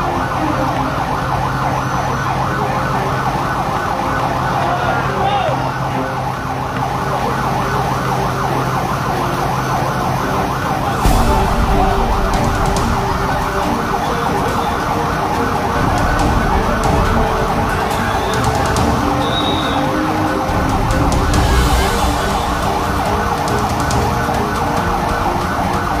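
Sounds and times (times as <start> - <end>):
emergency vehicle siren warbling: 0.0 - 26.0
low rumble: 10.9 - 19.4, 20.1 - 26.0.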